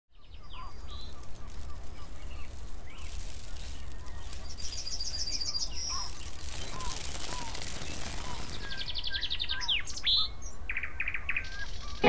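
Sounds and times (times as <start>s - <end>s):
birds chirping: 0.2s - 12.0s.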